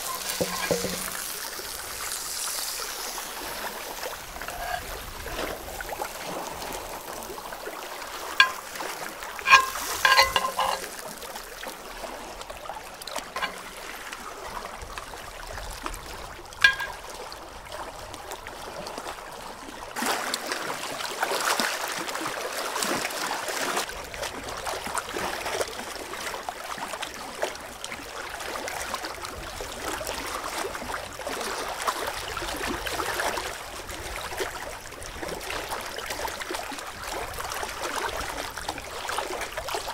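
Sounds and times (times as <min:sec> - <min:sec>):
metal tongs clinking on wood: 0:00.0 - 0:01.3, 0:04.4 - 0:05.0, 0:08.4 - 0:08.8, 0:09.4 - 0:11.0, 0:13.4 - 0:13.7, 0:16.6 - 0:17.0
water lapping against rocky shore: 0:00.0 - 0:17.8.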